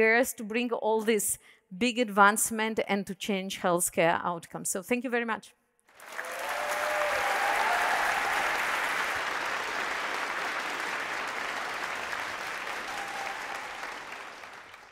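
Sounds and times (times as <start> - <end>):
large audience applauding: 5.9 - 14.9.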